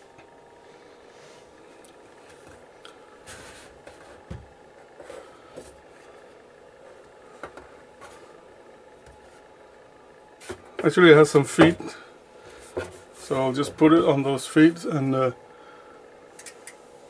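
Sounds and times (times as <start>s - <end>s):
small clicks and knocks: 16.4s - 16.8s.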